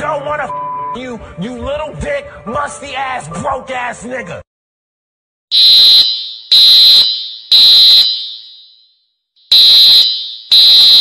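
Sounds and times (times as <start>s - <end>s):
fire alarm horn beeping: 5.5s - 8.8s, 9.5s - 11.0s.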